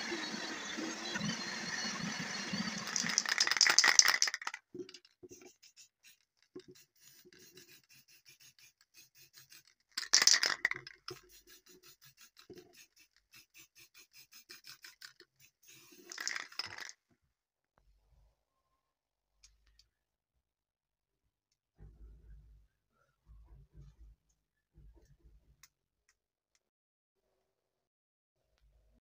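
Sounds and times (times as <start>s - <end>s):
grinding wheel on steel blade: 0.0s - 3.4s.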